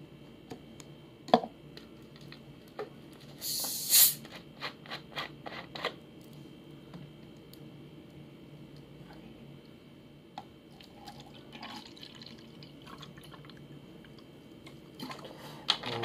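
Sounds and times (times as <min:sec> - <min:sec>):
carbonation hissing: 0:03.4 - 0:04.2.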